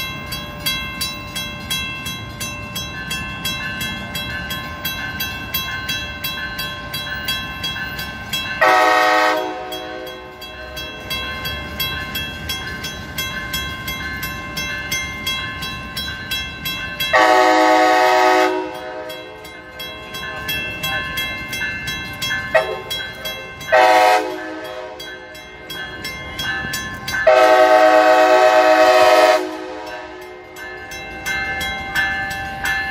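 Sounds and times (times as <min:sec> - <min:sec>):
level crossing bell ringing: 0:00.0 - 0:32.9
low rumble of approaching train: 0:00.0 - 0:32.9
train horn blasts: 0:08.6 - 0:10.2, 0:17.1 - 0:19.1, 0:23.7 - 0:25.0, 0:27.3 - 0:30.2.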